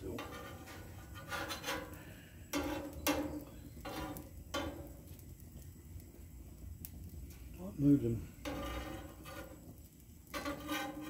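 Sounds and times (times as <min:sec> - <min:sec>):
steel spatula scraping griddle: 0:00.0 - 0:05.1, 0:08.3 - 0:11.0.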